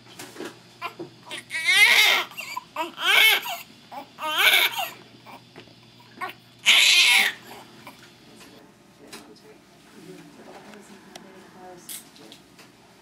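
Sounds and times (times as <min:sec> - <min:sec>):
newborn baby crying: 0:00.8 - 0:05.4, 0:06.2 - 0:08.0.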